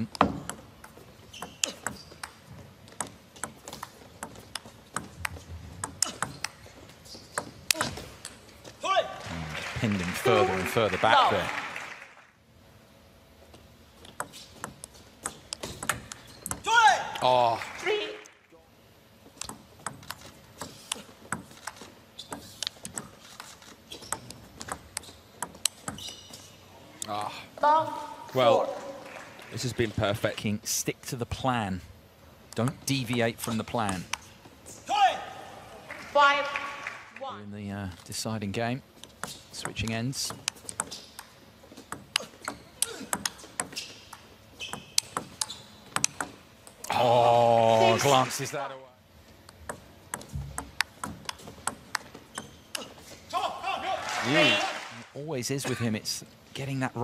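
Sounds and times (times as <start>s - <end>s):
ball hitting table tennis bats: 0.1s - 6.7s, 14.1s - 17.3s, 19.4s - 23.2s, 39.1s - 46.9s, 49.5s - 52.9s
ball bouncing on table: 49.6s - 52.5s.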